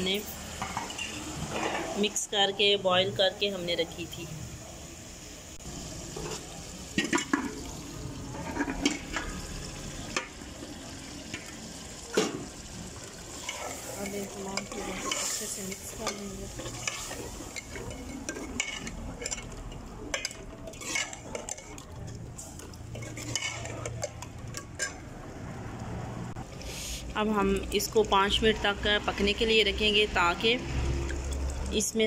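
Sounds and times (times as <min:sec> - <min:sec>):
curry sizzling in a metal pot: 0:00.0 - 0:25.2, 0:26.4 - 0:32.0
metal spoon scraping a pot: 0:13.3 - 0:25.1.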